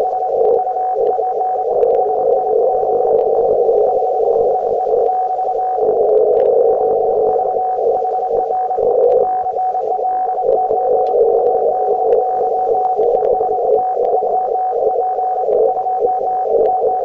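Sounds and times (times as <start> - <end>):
radio band noise hiss: 0.0 - 17.0
steady radio tone: 0.0 - 17.0.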